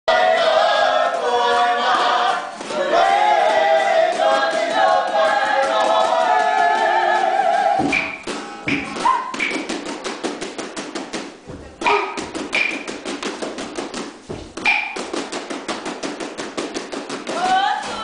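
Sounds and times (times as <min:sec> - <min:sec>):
group of people singing: 0:00.1 - 0:08.9, 0:17.3 - 0:18.0
poi balls tapping: 0:07.8 - 0:18.0.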